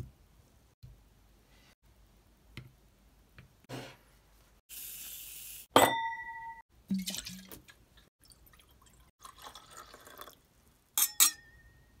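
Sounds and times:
glass ringing: 5.8s - 6.6s, 11.0s - 12.0s
drink pouring into glasses: 8.2s - 10.5s
sharp glass chinks: 11.0s - 11.9s.

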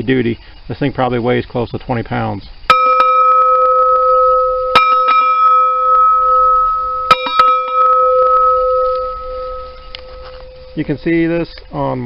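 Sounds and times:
clapper striking bell: 2.7s - 11.2s
steel bell ringing: 2.7s - 11.4s.

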